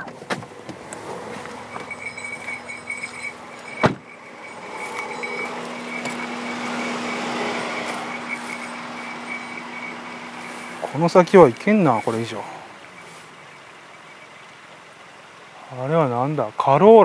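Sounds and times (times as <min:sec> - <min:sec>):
car door shutting: 0:00.0 - 0:01.2, 0:03.7 - 0:04.2
low steady hum: 0:00.0 - 0:15.6
pulsing insect trill: 0:00.6 - 0:17.0
outdoor hiss: 0:05.6 - 0:17.0.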